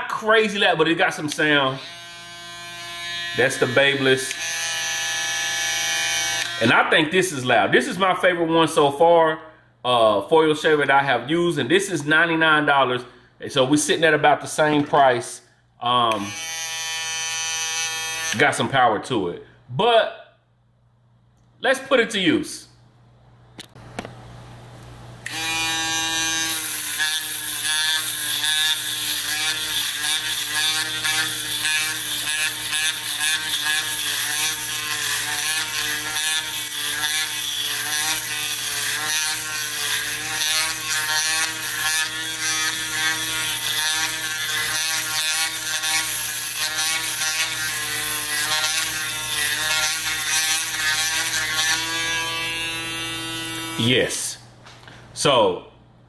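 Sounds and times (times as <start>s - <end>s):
electric shaver humming: 1.3s - 6.7s, 16.1s - 18.4s, 25.2s - 53.9s.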